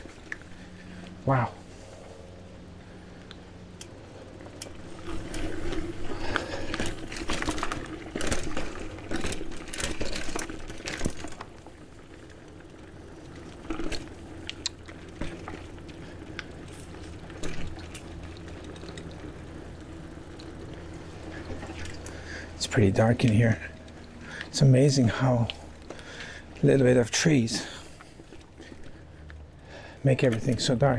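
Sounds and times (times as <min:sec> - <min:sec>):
bicycle tyres on dirt trail: 0:00.0 - 0:30.9
steady low hum: 0:00.0 - 0:30.9
crunching and rattling: 0:04.4 - 0:24.7.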